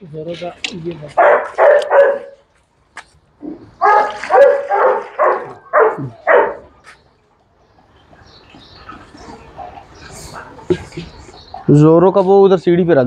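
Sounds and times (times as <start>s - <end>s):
dog barking: 1.2s - 2.4s, 3.8s - 6.8s.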